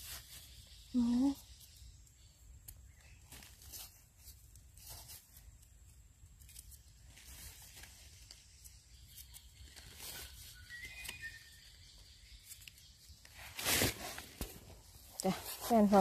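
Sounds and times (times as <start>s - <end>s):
leaf litter rustling: 12.5s - 16.0s.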